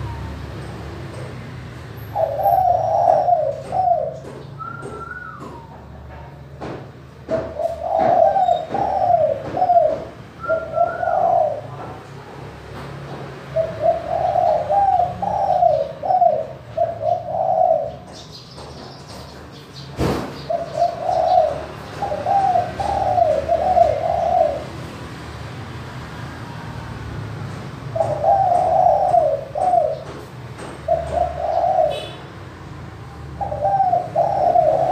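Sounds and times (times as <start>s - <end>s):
dove cooing: 2.0s - 5.8s, 7.3s - 12.0s, 13.5s - 19.4s, 20.2s - 24.9s, 27.8s - 32.3s, 33.3s - 34.9s
sharp knock: 20.0s - 20.4s.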